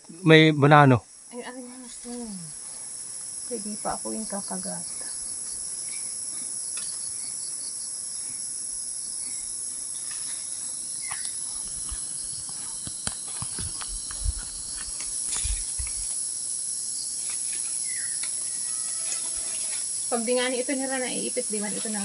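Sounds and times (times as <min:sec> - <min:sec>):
high-pitched insect drone: 0:00.2 - 0:22.0
branches rustling and clicking: 0:10.0 - 0:16.2, 0:17.1 - 0:20.2.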